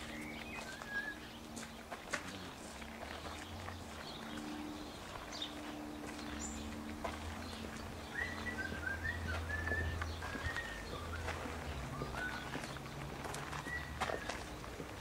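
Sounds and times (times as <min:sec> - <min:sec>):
low outdoor rumble: 0:00.0 - 0:15.0
small birds chirping: 0:00.0 - 0:15.0.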